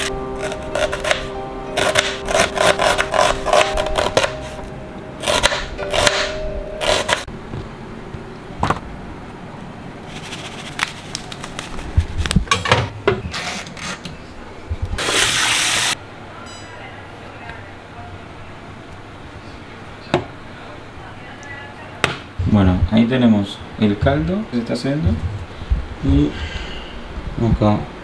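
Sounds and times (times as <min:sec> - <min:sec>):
knife chopping onion on board: 0:00.4 - 0:04.4, 0:05.2 - 0:07.2.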